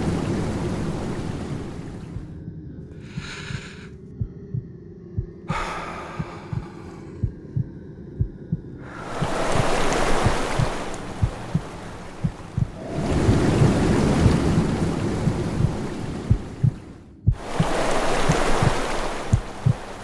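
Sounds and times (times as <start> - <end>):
heartbeat thumps: 2.1 - 2.4, 3.1 - 20.0
rushing hiss: 9.0 - 16.5, 17.4 - 20.0.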